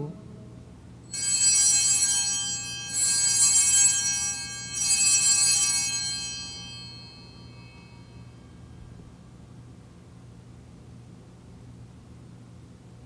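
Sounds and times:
altar bells jangling: 1.1s - 8.3s.

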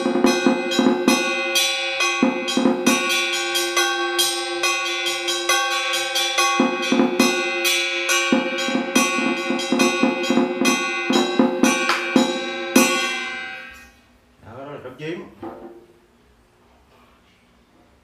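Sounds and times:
deep drum-head beats: 0.0s - 13.5s
fast stick drumming: 0.0s - 13.6s
metal percussion ringing: 0.0s - 14.0s.

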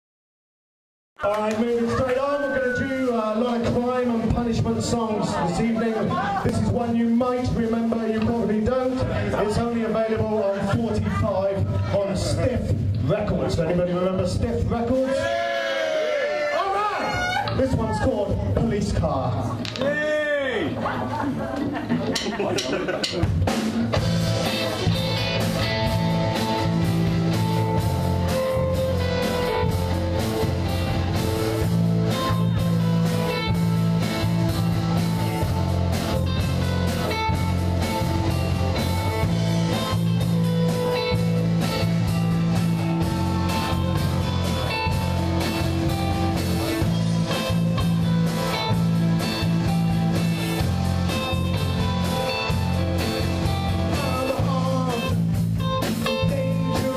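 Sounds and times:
drum kit driving beat: 1.4s - 15.9s, 17.1s - 56.9s
distorted electric guitars: 17.0s - 56.9s.

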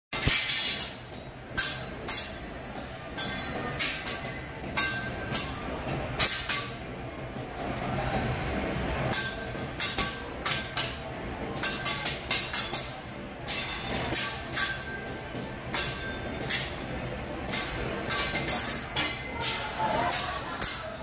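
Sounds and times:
metal spatula clanging on griddle: 0.2s - 6.8s, 9.1s - 11.0s, 11.6s - 21.0s.

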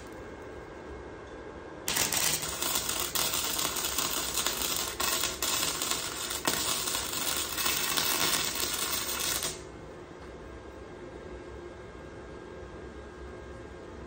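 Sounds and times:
arc welder crackling: 1.9s - 9.7s.

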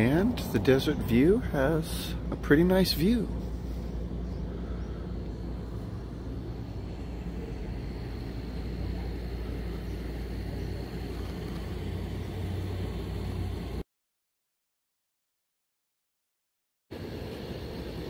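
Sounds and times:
low mechanical rumble and hum: 0.0s - 13.8s, 16.9s - 18.0s.

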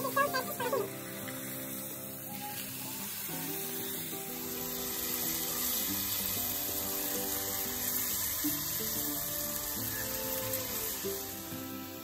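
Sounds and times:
background music with held notes: 0.0s - 12.0s
dough sizzling in hot oil: 0.0s - 12.0s.

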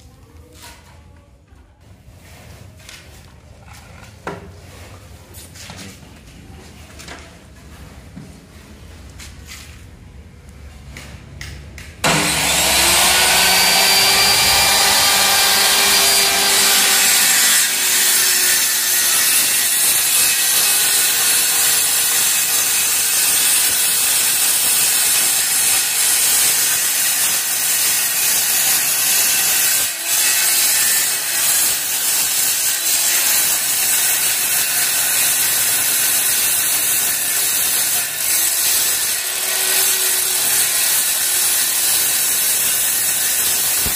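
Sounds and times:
circular saw cutting wood: 12.0s - 43.9s.

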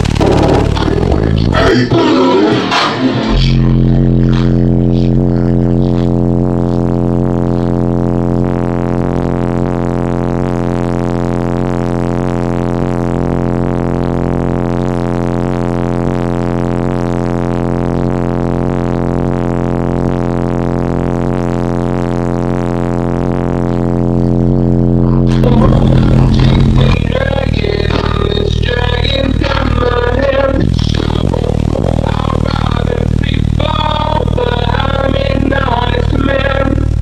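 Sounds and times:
loud deep bass note: 0.0s - 37.0s.

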